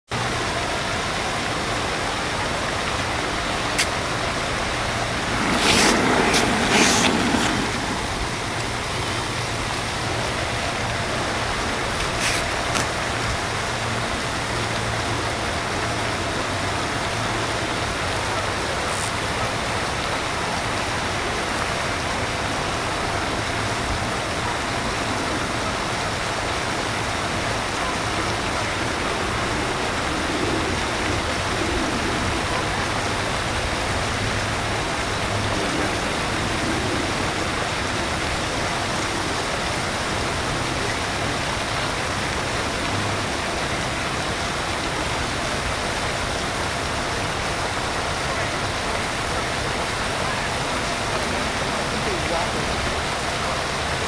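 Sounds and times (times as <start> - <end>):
rushing outdoor background noise: 0.1 - 54.0
rustling: 4.8 - 9.1.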